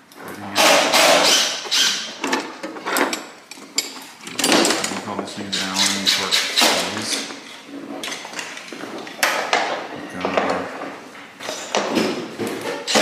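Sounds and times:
tools clattering: 1.7 - 9.6.

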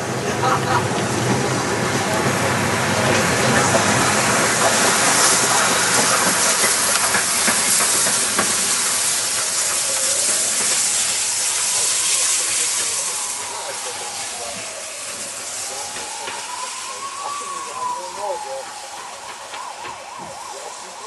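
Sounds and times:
loud steam hiss: 0.0 - 21.0
wheels knocking on rail joints: 0.9 - 13.3, 18.3 - 20.8.

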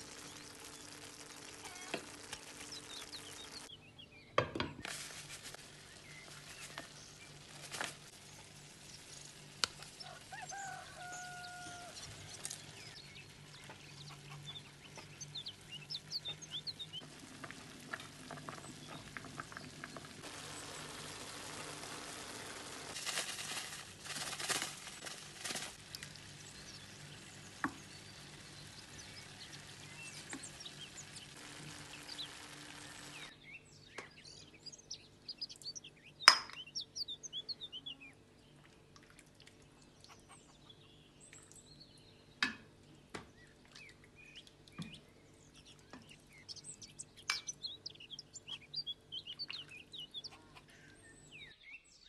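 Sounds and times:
birds chirping: 0.0 - 4.4, 9.7 - 22.8, 25.8 - 38.7, 39.6 - 52.0
steady hiss: 20.2 - 26.6, 28.5 - 33.3.

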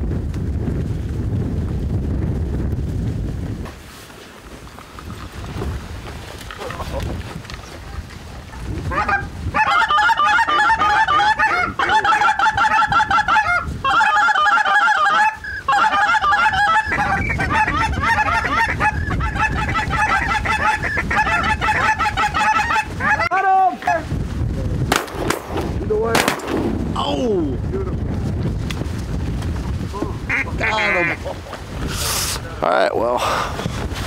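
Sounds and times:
goose honking and clucking: 8.5 - 24.0, 30.3 - 31.4.

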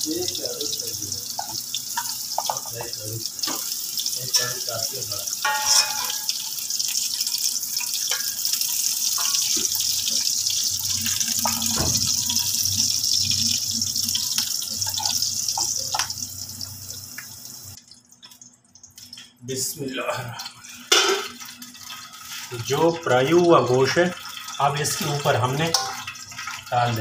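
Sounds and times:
food sizzling in hot oil: 0.0 - 19.4, 20.6 - 27.0
spatula scraping and tapping pan: 5.4 - 6.4, 25.7 - 26.7.

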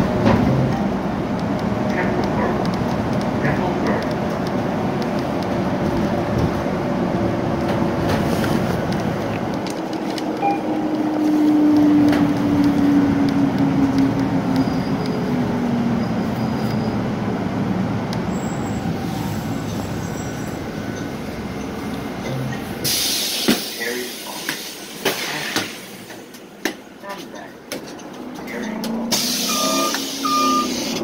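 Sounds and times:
bus engine and road noise: 0.0 - 31.0.

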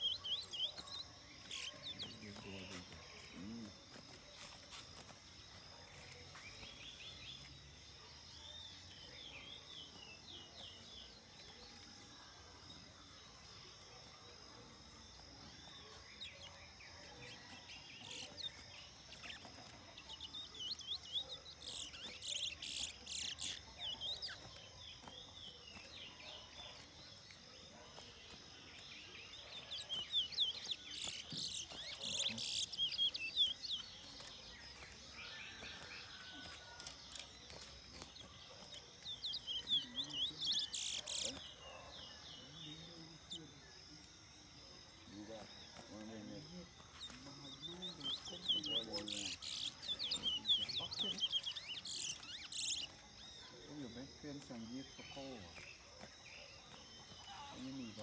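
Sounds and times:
songbird twittering song: 0.0 - 58.0.

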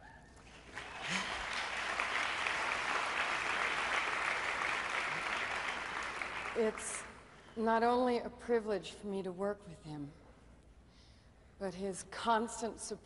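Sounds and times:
audience applauding: 0.4 - 7.2.

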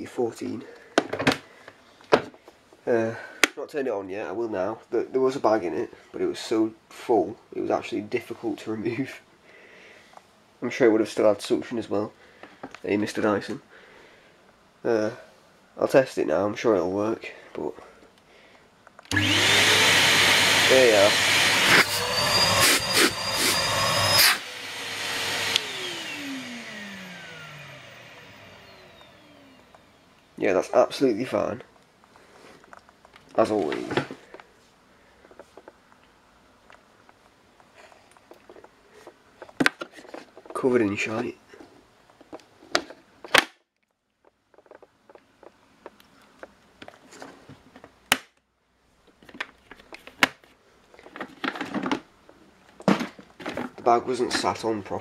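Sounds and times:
vacuum cleaner winding down: 19.1 - 30.1.

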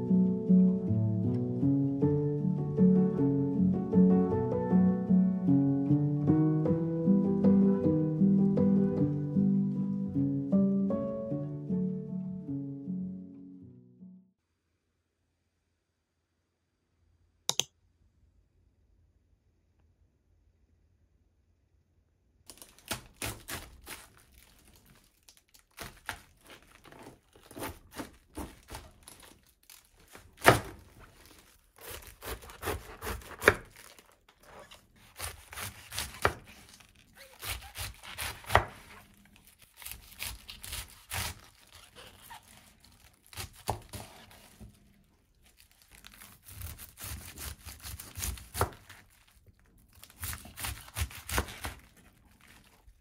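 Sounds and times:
knife crunching through cabbage: 22.5 - 53.0.

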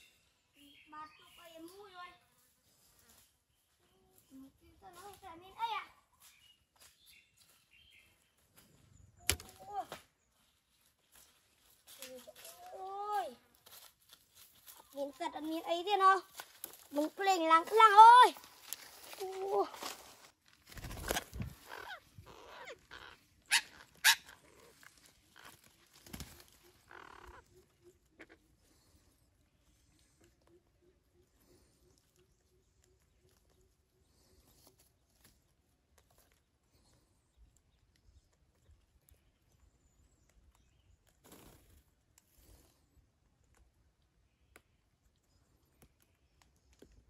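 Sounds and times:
parakeets squawking: 21.6 - 24.7, 26.8 - 27.5.

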